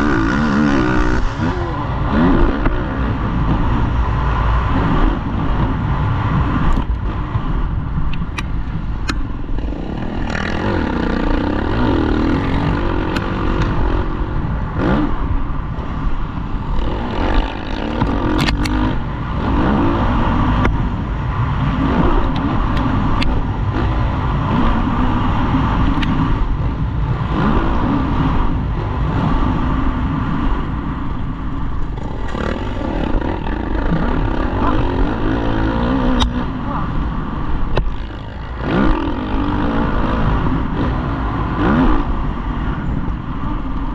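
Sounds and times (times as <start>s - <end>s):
dirt bike engine revving: 0.0s - 4.0s, 9.5s - 15.4s, 16.6s - 20.7s, 27.1s - 30.5s, 31.9s - 37.1s, 37.7s - 42.4s.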